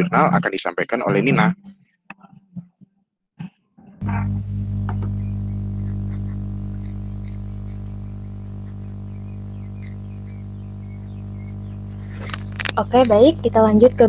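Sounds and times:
electrical hum: 0:04.0 - 0:14.0
faint high chirps: 0:08.6 - 0:13.1.

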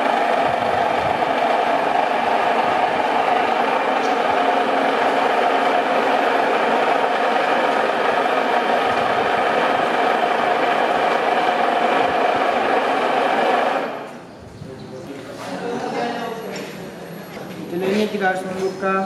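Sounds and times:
milling machine humming: 0:00.0 - 0:14.1.

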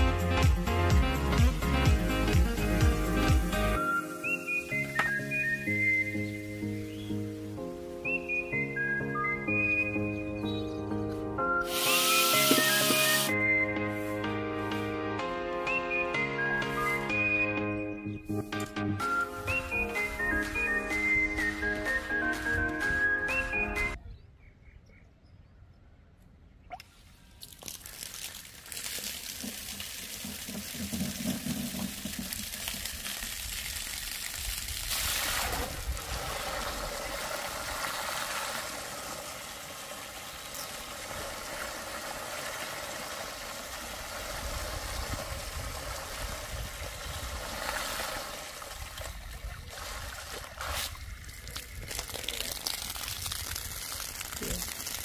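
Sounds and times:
water splashing and gushing: 0:00.0 - 0:07.8, 0:11.6 - 0:13.4, 0:27.4 - 0:55.0.

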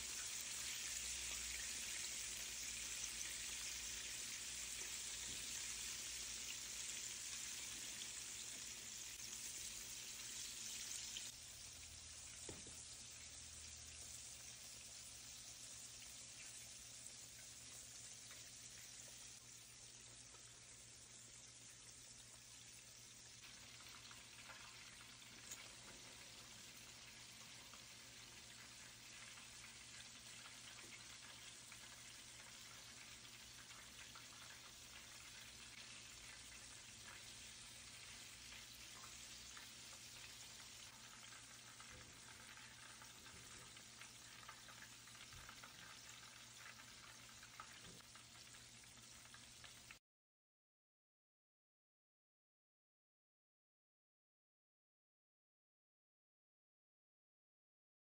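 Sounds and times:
food deep-frying in oil: 0:00.0 - 0:50.0.

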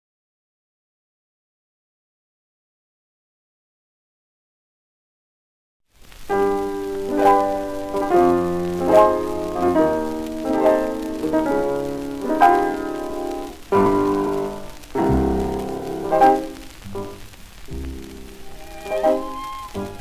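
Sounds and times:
gramophone piano music: 0:06.3 - 0:20.0.

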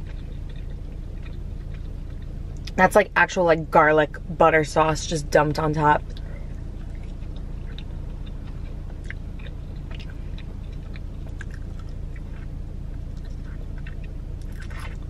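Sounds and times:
chewing and biting: 0:00.0 - 0:02.8, 0:06.0 - 0:15.0
low hum: 0:00.0 - 0:15.0.

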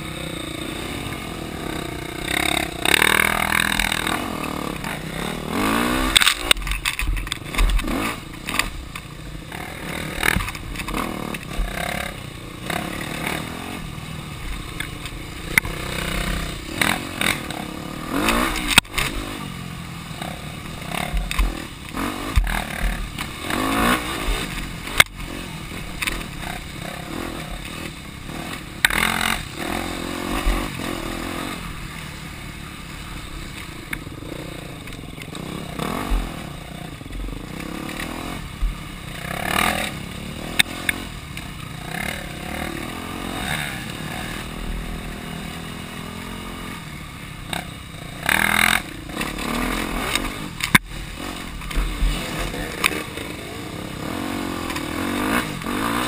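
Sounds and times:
bike rattling over bumps: 0:00.0 - 0:56.0
dirt bike engine revving: 0:00.0 - 0:56.0.

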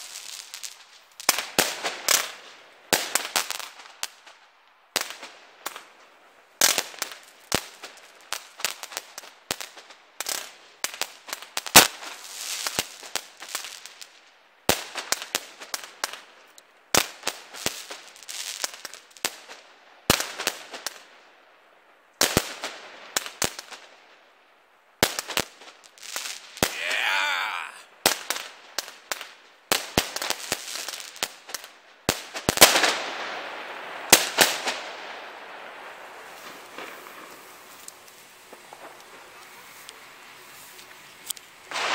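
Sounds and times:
firework crackle: 0:00.0 - 0:04.4, 0:28.1 - 0:40.8.

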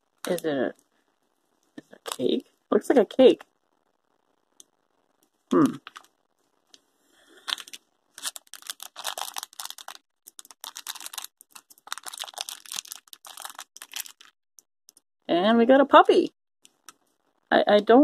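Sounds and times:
plastic wrapper crinkling: 0:00.2 - 0:00.6, 0:04.6 - 0:06.8, 0:07.4 - 0:15.0.

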